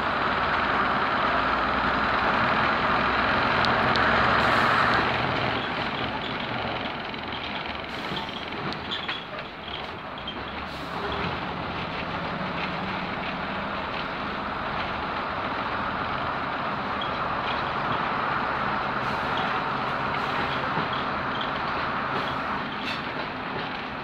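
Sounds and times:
diesel engine running: 0.0 - 24.0
wheel-on-rail noise: 0.0 - 24.0.

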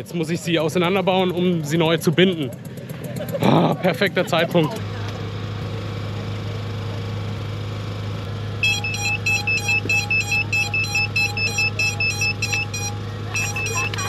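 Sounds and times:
steady low hum: 8.5 - 14.0
rapid electronic beeps: 8.6 - 14.0.

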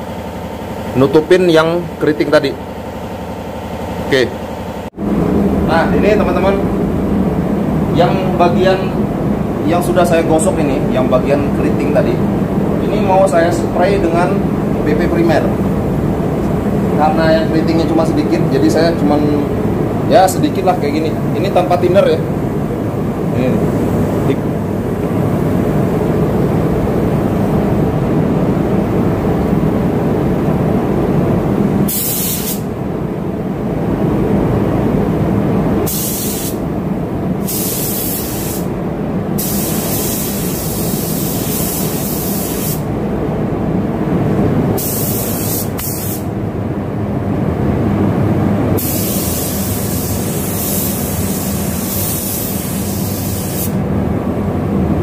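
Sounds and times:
spray gun hissing: 31.9 - 32.7, 35.8 - 36.6, 37.4 - 38.7, 39.4 - 42.9, 44.8 - 46.3, 48.8 - 53.8.

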